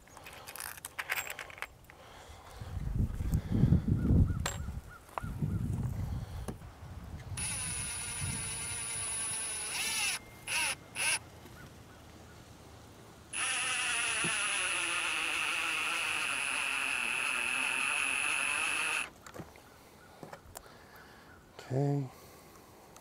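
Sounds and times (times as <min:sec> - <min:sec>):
impact driver driving screws: 0:07.4 - 0:11.2, 0:13.4 - 0:19.1.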